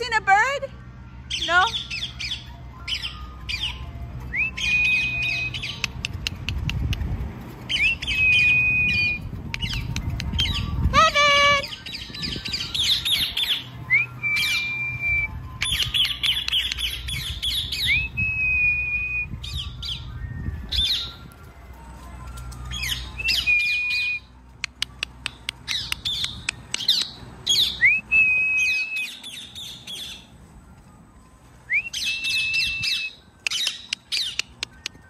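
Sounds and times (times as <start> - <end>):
parrot whistle rising: 1.7 - 6.1, 7.7 - 10.9, 11.6 - 21.2, 22.7 - 24.3, 24.9 - 30.3, 31.7 - 35.0
wind rumble on microphone: 4.0 - 35.0.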